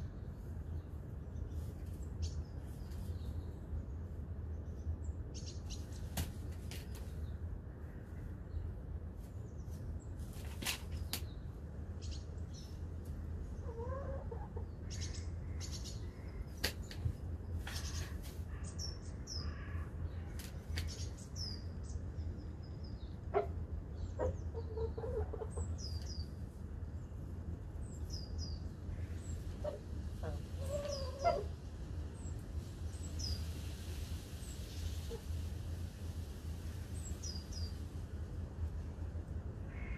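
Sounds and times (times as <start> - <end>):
hens clucking: 13.6 - 14.7.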